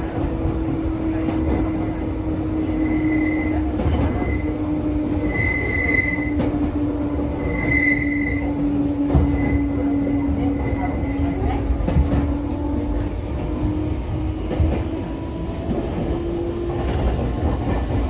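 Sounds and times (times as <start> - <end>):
electric train rumble and hum: 0.0 - 18.0
high-pitched wheel squeals: 2.7 - 4.6, 5.2 - 6.5, 7.2 - 11.4.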